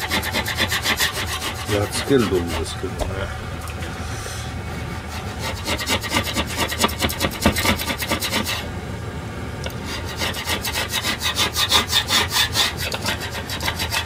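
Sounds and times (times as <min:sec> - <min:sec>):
scraper blade scraping glass cooktop: 0:00.0 - 0:02.8, 0:04.7 - 0:08.7, 0:09.7 - 0:14.0.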